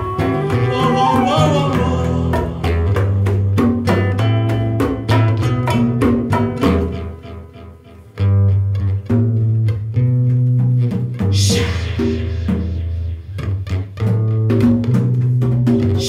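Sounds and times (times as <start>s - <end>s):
hand drums: 0.0s - 7.2s, 8.8s - 16.0s
acoustic guitar: 0.0s - 16.0s
deep bass line: 9.3s - 14.6s.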